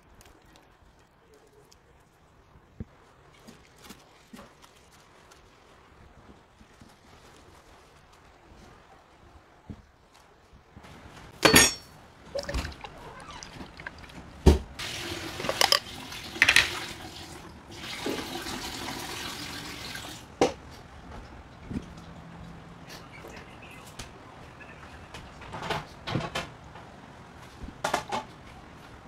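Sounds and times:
dressing pouring from a jar: 12.3 - 16.9.

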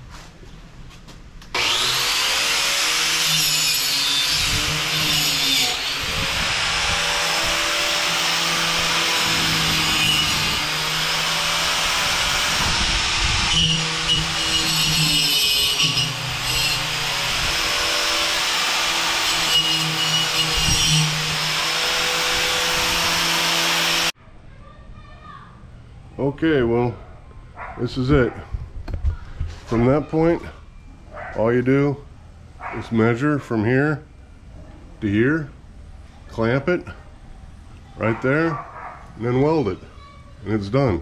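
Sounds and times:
angle grinder wire wheel brushing steel: 1.6 - 24.1.

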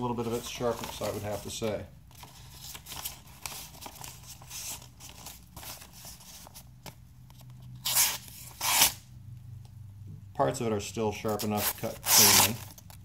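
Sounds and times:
paper rustling and crinkling: 0.1 - 7.5
knife slicing paper: 11.5 - 12.6.

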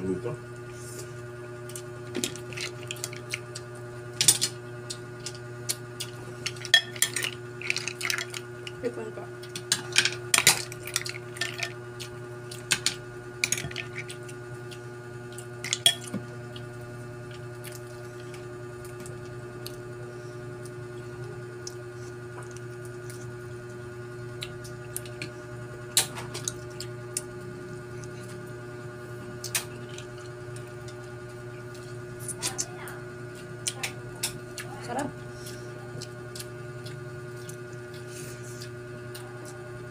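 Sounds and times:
steady hum: 0.0 - 39.9
shells and spoon clinking on plates: 6.6 - 7.4
chewing: 12.0 - 12.7, 21.6 - 23.4, 33.3 - 39.6.

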